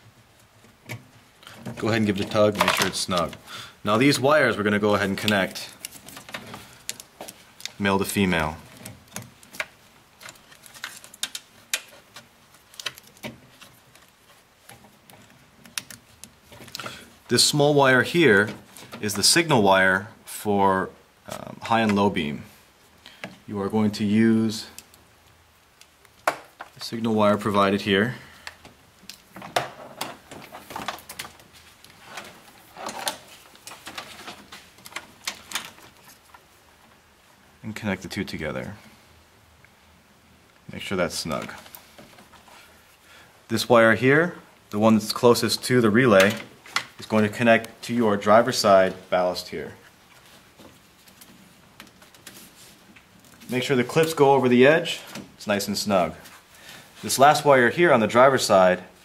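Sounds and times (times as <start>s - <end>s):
hands handling wire connectors: 0.0s - 19.4s, 22.9s - 37.0s, 44.6s - 57.7s.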